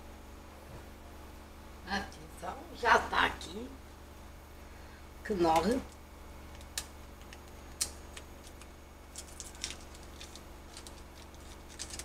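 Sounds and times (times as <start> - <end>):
steady low hum: 0.0 - 12.0
foil wrapper crinkling: 6.5 - 12.0.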